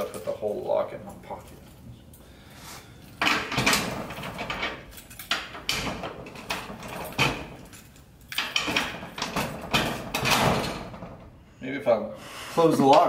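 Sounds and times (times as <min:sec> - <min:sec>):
metal door panel shaking: 0:03.2 - 0:07.8, 0:08.4 - 0:11.4
padlock clanking against metal door: 0:03.2 - 0:11.3.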